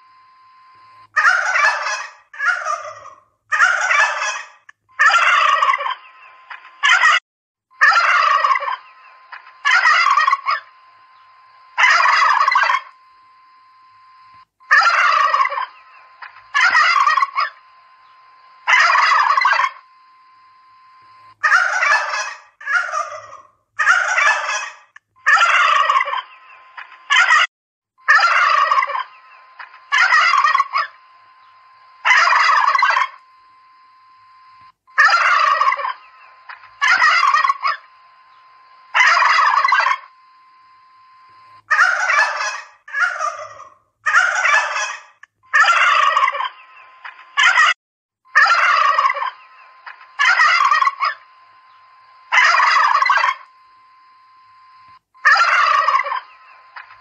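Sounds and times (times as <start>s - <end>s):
faint steady hum: 0.0s - 7.1s, 7.8s - 27.3s, 28.0s - 47.6s, 48.3s - 57.0s
turkeys gobbling: 1.2s - 7.2s, 7.8s - 12.9s, 14.7s - 18.0s, 18.6s - 19.8s, 21.4s - 27.5s, 28.1s - 33.2s, 35.0s - 37.9s, 38.9s - 40.1s, 41.7s - 51.3s, 52.3s - 53.5s, 55.2s - 57.0s.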